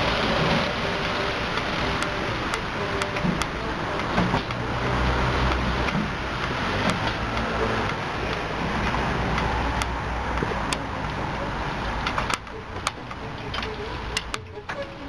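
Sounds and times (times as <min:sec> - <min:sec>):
spinning brushes and water spray: 0:00.0 - 0:15.0
sharp clicks: 0:05.5 - 0:11.3, 0:11.9 - 0:15.0.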